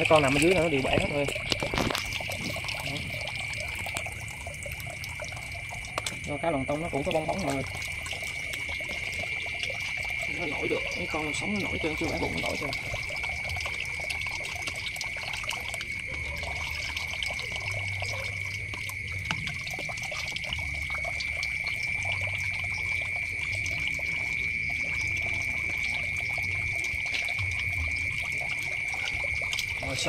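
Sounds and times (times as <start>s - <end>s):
water pouring from tap: 0.0s - 30.0s
water splashing in plastic basin: 0.0s - 30.0s.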